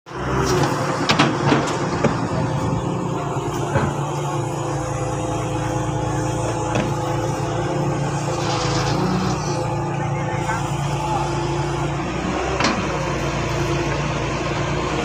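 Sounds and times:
excavator diesel engine running: 0.1s - 15.0s.

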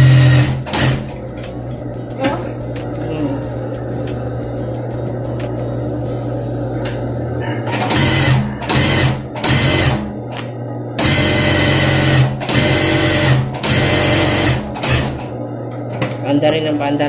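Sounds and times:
sewing machine motor stitching: 0.0s - 1.2s, 7.8s - 10.0s, 11.0s - 15.2s.

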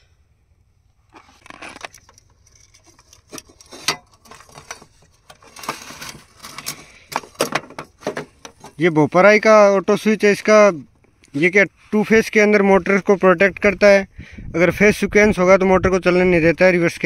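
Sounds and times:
electrical parts clicking and tapping: 1.9s - 8.8s.

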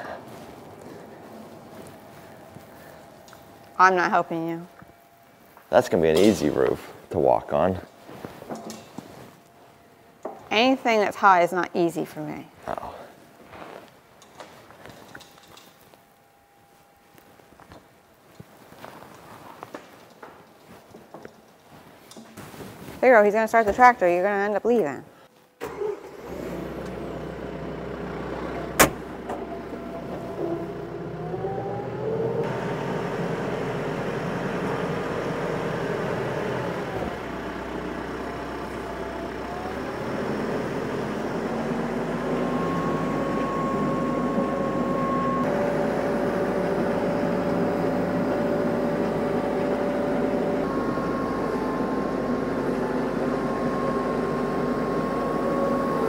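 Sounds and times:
tractor engine running: 25.7s - 56.0s
steady whining tones: 26.4s - 56.0s.

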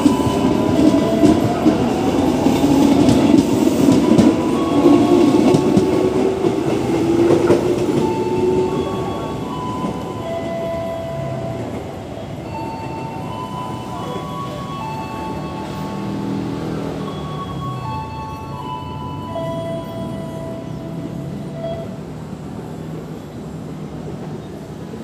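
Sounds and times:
electric train whining tones: 0.0s - 22.1s
train rumbling past: 0.0s - 25.0s.

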